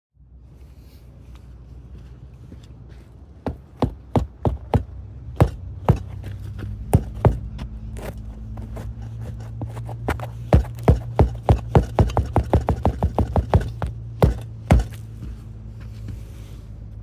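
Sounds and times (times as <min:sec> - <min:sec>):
boot kicking concrete wall: 0:03.4 - 0:15.4.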